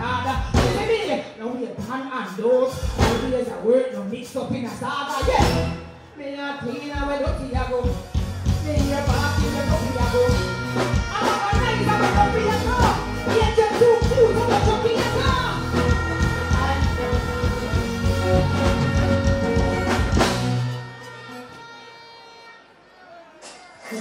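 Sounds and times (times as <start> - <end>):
dancehall backing beat: 6.8 - 21.6
woman singing into microphone: 8.6 - 20.3.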